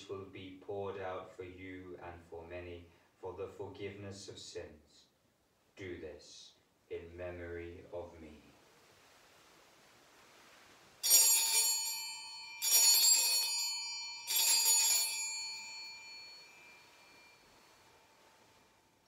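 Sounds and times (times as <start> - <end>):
altar bells jangling: 11.0 - 19.0.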